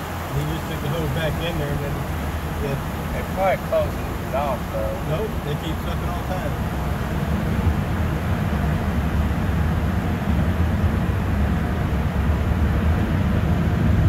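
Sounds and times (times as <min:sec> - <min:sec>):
water spray: 0:00.0 - 0:06.6
car wash machinery rumble: 0:00.0 - 0:14.0.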